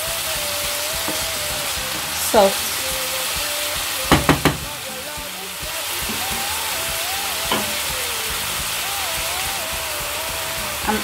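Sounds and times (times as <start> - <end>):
filling sizzling in a frying pan: 0.0 - 11.0.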